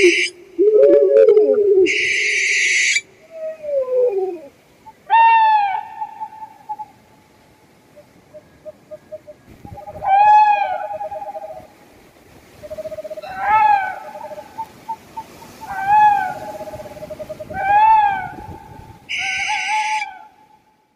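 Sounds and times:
owl trills: 0:00.0 - 0:07.0, 0:08.0 - 0:11.8, 0:12.6 - 0:20.3
owl wailing calls: 0:00.0 - 0:07.0, 0:08.0 - 0:11.8, 0:12.6 - 0:20.4.

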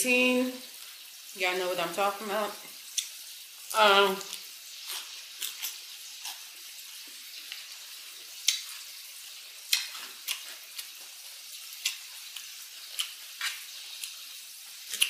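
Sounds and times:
wet mouth clicks: 0:02.9 - 0:03.1, 0:08.4 - 0:08.7
chewing crunches: 0:04.2 - 0:08.9, 0:09.6 - 0:15.0.

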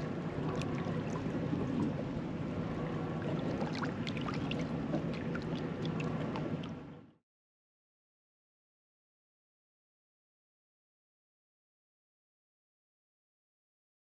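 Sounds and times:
water lapping against boat hull: 0:00.0 - 0:07.0
low steady rumble: 0:00.0 - 0:07.2.

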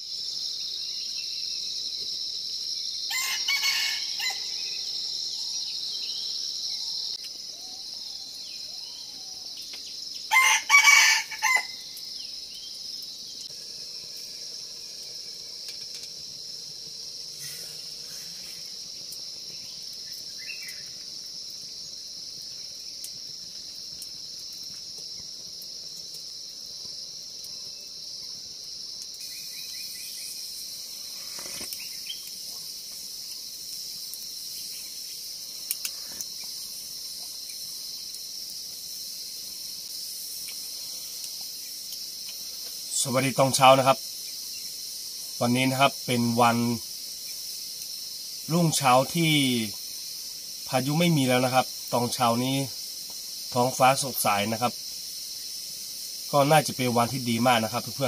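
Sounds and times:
insects chirring: 0:00.0 - 0:58.0
rooster crowing: 0:03.1 - 0:04.8, 0:10.2 - 0:11.9.

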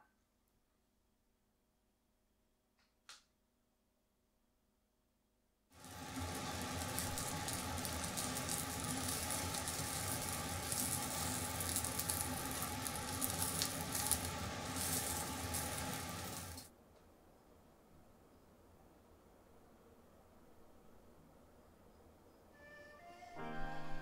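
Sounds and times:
fish sizzling and crackling on grill: 0:05.8 - 0:16.7.

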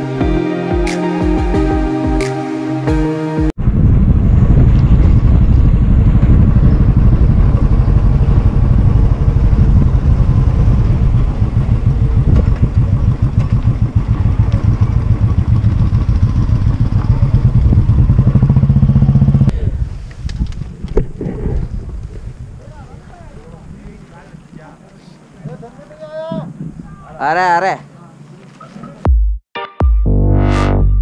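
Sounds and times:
motorcycle engine running: 0:03.6 - 0:19.5.

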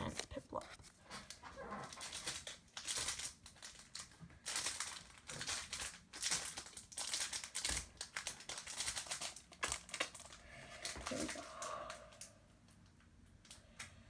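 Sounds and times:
foil wrapper crinkling: 0:01.3 - 0:11.8.

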